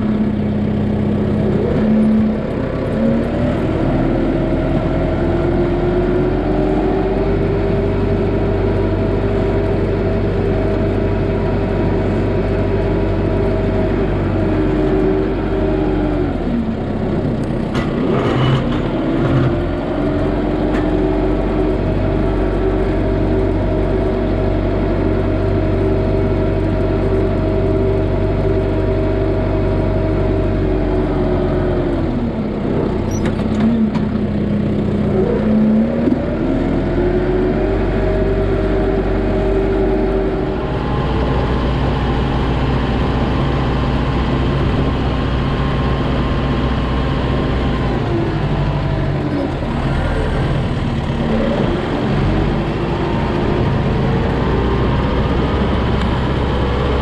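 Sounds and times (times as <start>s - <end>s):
tractor diesel engine revving: 0.0s - 57.0s
clunks: 33.0s - 34.3s.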